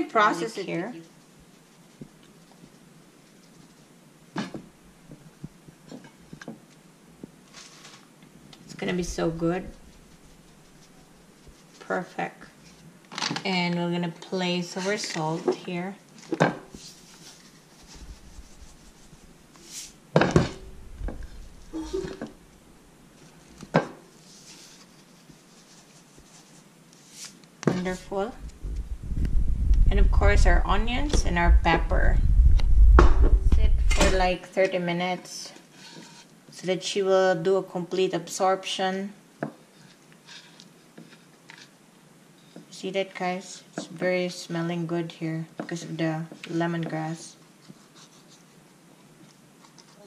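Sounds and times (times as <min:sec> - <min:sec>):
rustle: 0:04.6 - 0:13.6, 0:14.8 - 0:31.2.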